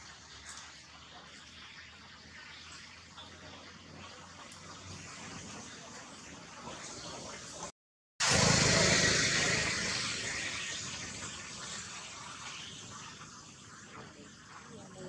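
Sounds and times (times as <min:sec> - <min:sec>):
motor vehicle passing: 0:08.2 - 0:11.4.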